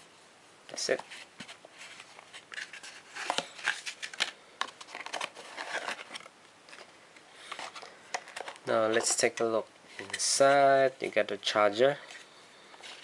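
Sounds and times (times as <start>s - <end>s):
cardboard scraping and rubbing: 1.0s - 4.1s.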